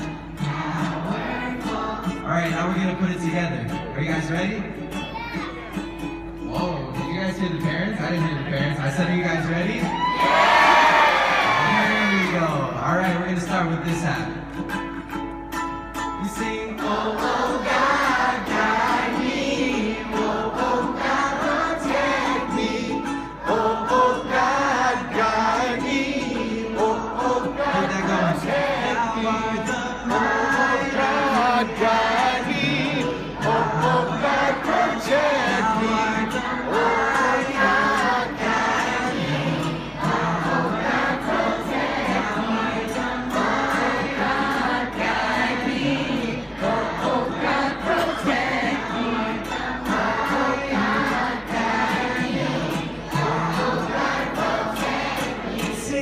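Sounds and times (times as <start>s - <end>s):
children's choir singing: 0.0s - 2.6s, 10.0s - 12.5s, 15.9s - 56.0s
strummed ukulele: 0.0s - 56.0s.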